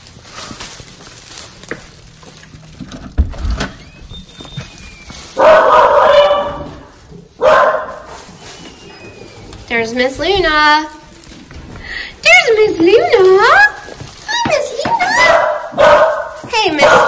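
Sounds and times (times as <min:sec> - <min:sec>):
dogs barking: 0:05.2 - 0:08.4, 0:14.9 - 0:17.0.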